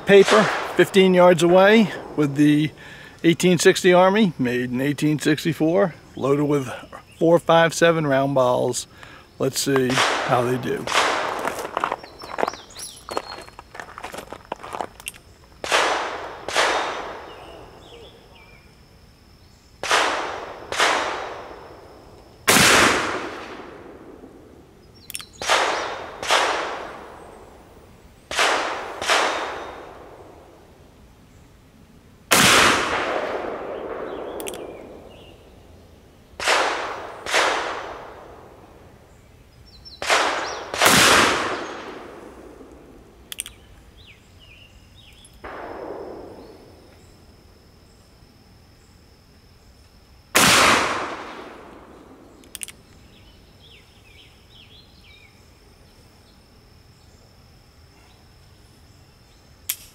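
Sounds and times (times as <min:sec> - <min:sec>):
revolver gunshots: 0:00.0 - 0:02.5, 0:09.9 - 0:11.5, 0:15.6 - 0:17.6, 0:19.8 - 0:21.7, 0:22.5 - 0:24.4, 0:25.4 - 0:27.2, 0:28.3 - 0:30.5, 0:32.3 - 0:35.5, 0:36.4 - 0:38.6, 0:40.0 - 0:43.0, 0:45.4 - 0:46.9, 0:50.4 - 0:52.4.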